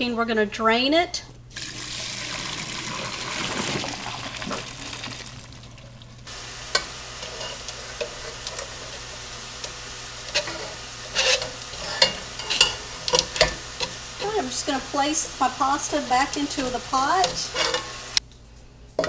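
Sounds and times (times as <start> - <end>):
water pouring into colander: 1.5 - 6.3.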